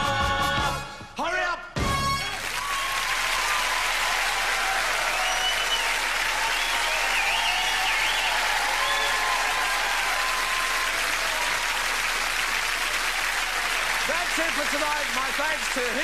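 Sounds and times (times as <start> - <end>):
audience applauding: 2.2 - 16.0.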